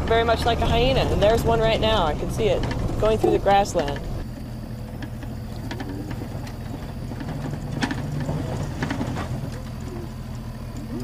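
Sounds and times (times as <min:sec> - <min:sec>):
vehicle engine running: 0:00.0 - 0:11.0
clicks and rattles: 0:02.2 - 0:04.3, 0:04.9 - 0:11.0.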